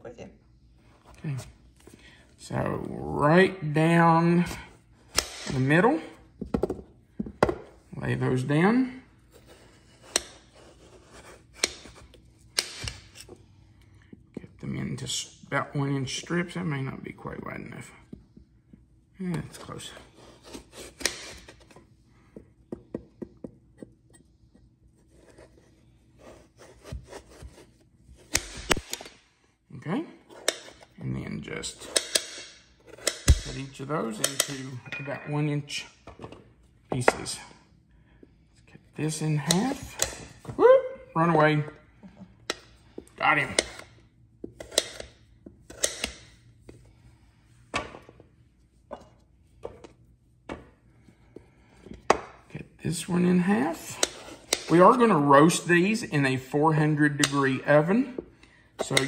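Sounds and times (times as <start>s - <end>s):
knife cutting squash on board: 44.4s - 46.2s.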